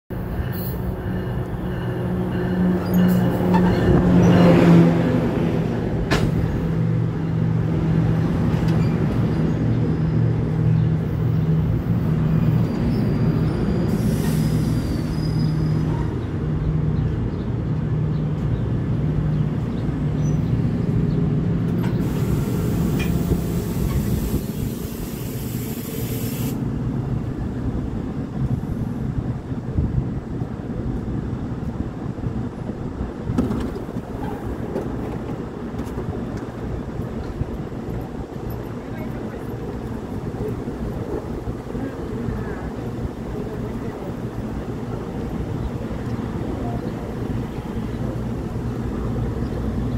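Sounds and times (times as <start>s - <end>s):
train engine drone and rail rumble: 0.1s - 49.9s
air hiss: 22.0s - 26.6s.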